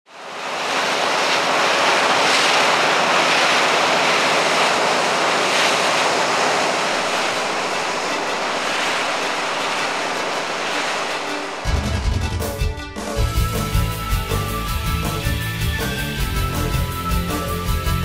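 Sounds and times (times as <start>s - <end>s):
water rushing from boat wash: 0.1s - 11.9s.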